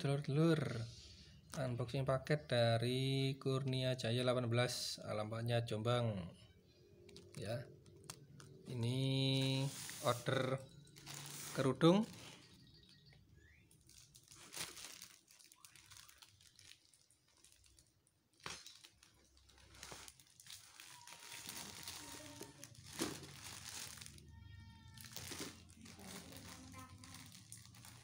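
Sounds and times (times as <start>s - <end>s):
plastic bag crinkling and rustling: 7.0s - 28.0s.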